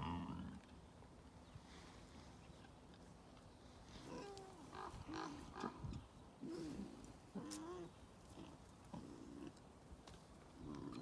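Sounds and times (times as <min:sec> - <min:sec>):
wild boar calling: 0:03.9 - 0:09.6.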